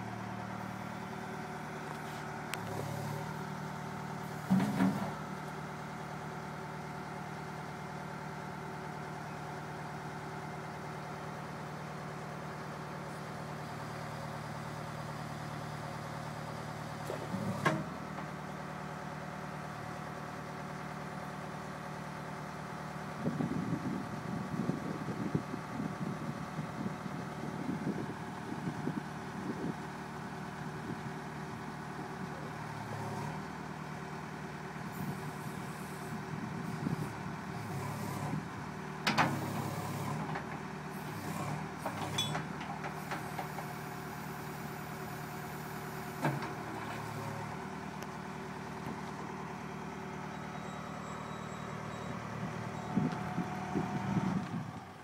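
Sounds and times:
diesel engine running: 0:00.0 - 0:55.0
sharp knocks of backhoe boom: 0:04.4 - 0:05.2.

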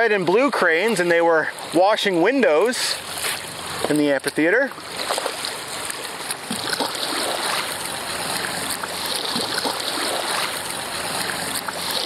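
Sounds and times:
water rushing and splashing: 0:00.0 - 0:12.0.

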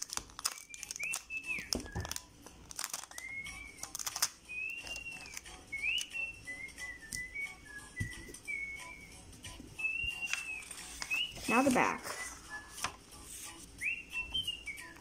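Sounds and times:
sticky tape crinkling on paper: 0:00.0 - 0:06.1, 0:10.1 - 0:13.7
person whistling a tune: 0:00.6 - 0:02.2, 0:03.0 - 0:03.9, 0:04.5 - 0:12.9, 0:13.8 - 0:15.0.

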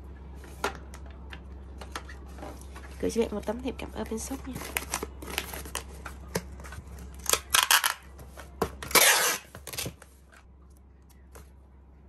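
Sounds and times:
packing tape ripping: 0:07.2 - 0:08.0, 0:08.8 - 0:10.0.

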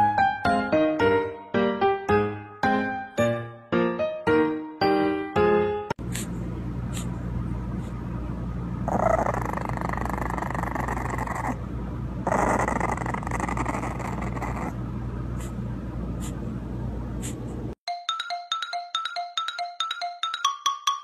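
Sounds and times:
steady low hum: 0:06.0 - 0:17.8
puppy growling: 0:08.8 - 0:14.8.

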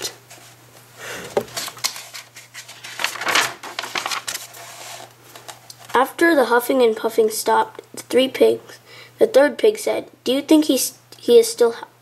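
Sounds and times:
book pages rustling: 0:01.4 - 0:06.0.

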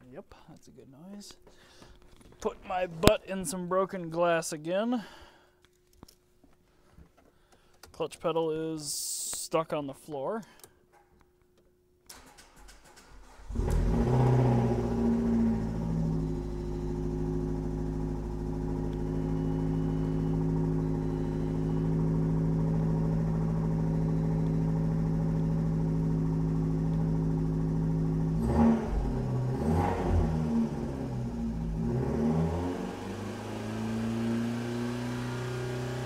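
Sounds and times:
car engine idling and revving: 0:12.7 - 0:36.0.

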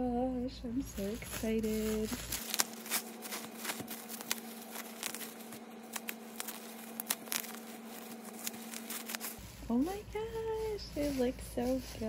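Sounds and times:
bubble wrap crinkling: 0:00.8 - 0:12.0.

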